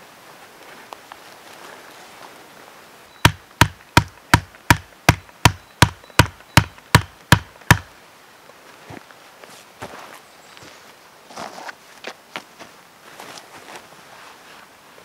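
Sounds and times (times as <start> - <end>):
hatchet knocking wooden stake: 3.2 - 7.9.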